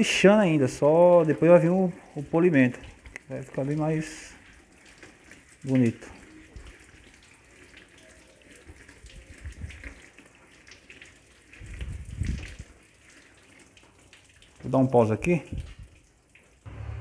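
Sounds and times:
hose water splashing: 0.0s - 17.0s
low rumble: 16.7s - 17.0s.

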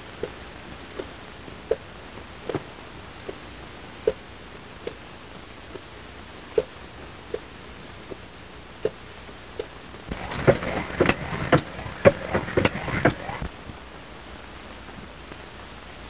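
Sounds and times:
flywheel knocking and clatter: 10.1s - 13.5s.

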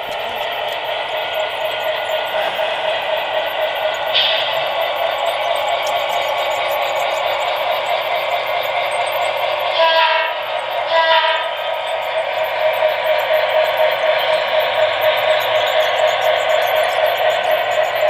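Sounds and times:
diesel engine drone through speaker: 0.0s - 18.0s.

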